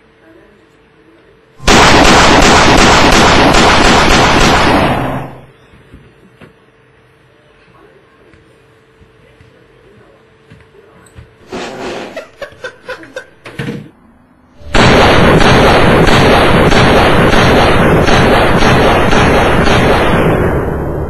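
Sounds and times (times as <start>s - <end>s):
loud distorted gunfire: 1.6s - 5.5s, 14.6s - 21.0s.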